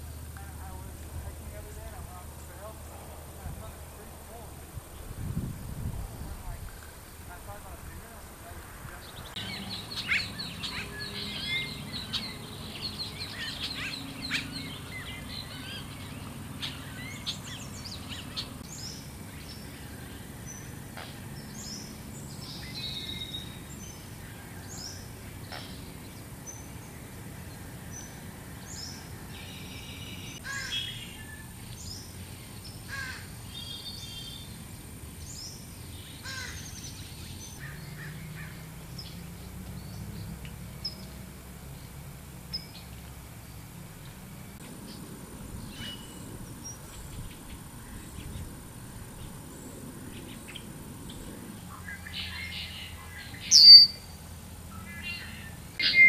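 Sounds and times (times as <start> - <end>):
low background noise: 0.0 - 56.0
wild birds chirping: 0.0 - 56.0.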